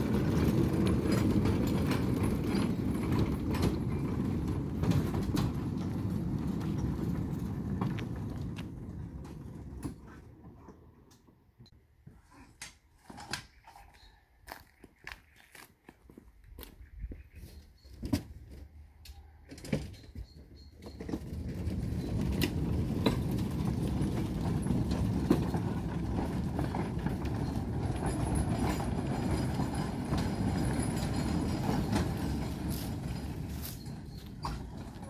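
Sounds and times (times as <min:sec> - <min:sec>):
model train wheels rumbling on rail: 0:00.0 - 0:11.2, 0:20.8 - 0:35.0.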